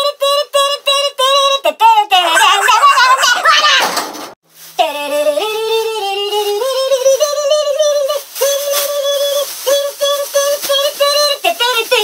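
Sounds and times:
high voice singing: 0:01.9 - 0:04.0.

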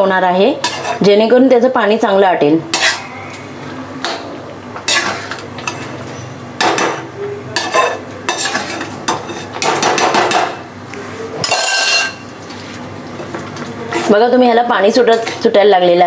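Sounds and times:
metal spatula scraping metal pan: 0:02.7 - 0:03.2.

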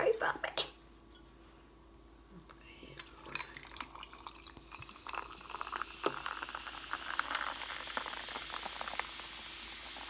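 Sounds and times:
drink fizzing in a glass: 0:02.9 - 0:10.0.

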